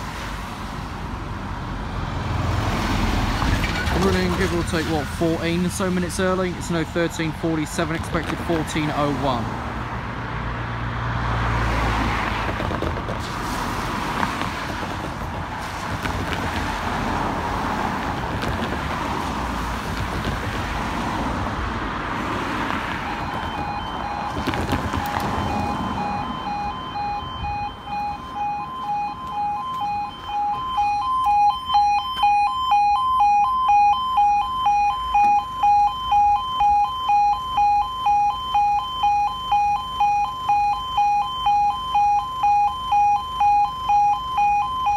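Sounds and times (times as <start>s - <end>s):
road traffic: 0.0s - 44.9s
level crossing alarm: 22.9s - 44.9s.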